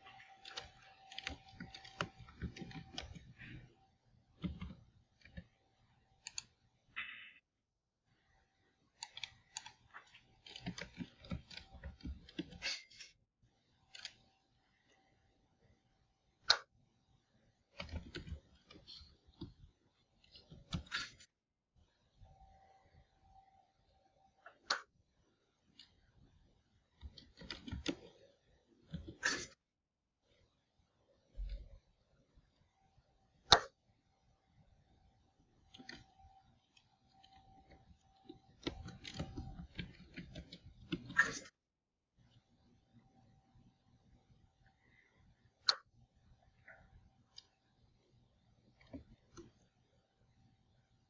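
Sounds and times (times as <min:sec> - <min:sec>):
keyboard keys clicking: 0:00.3 - 0:03.4.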